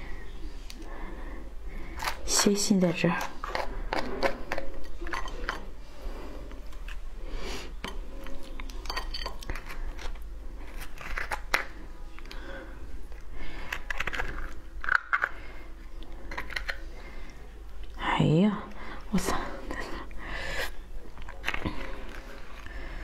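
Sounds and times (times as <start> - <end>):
crab shell crunching and snapping: 8.2 - 12.4, 13.1 - 15.4, 16.0 - 16.8.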